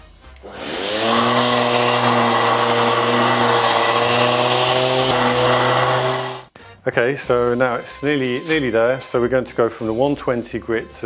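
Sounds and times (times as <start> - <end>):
dust extractor running: 0.4 - 6.5
orbital sander sanding wood: 0.5 - 6.5.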